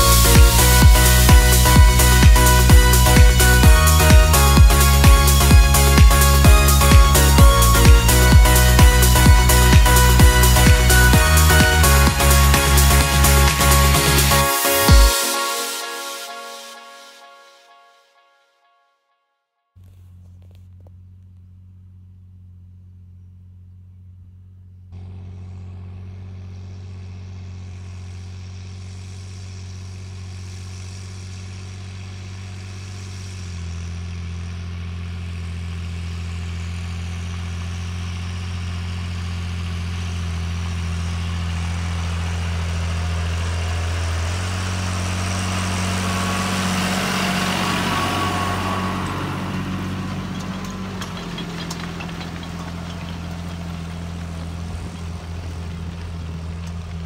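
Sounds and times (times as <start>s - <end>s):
tractor engine under load: 0.0s - 15.3s, 19.8s - 57.0s.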